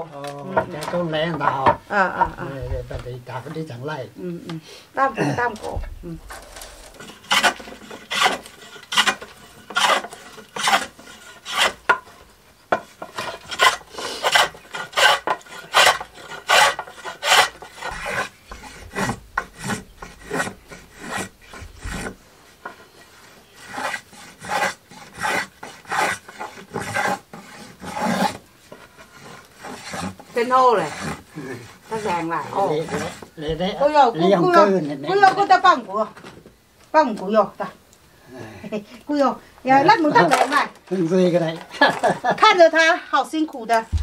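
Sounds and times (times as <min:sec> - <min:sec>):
hand plane shaving wood: 0:06.3 - 0:33.3.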